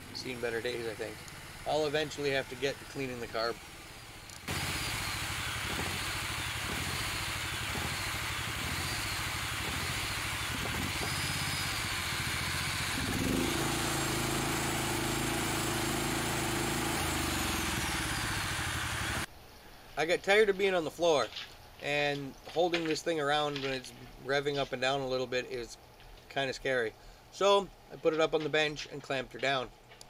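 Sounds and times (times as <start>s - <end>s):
single-cylinder engine running: 0.0s - 19.3s.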